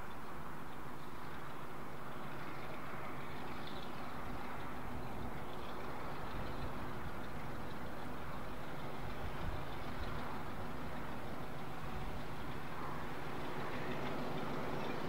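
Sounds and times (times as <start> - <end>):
train rumbling: 4.0 - 15.0.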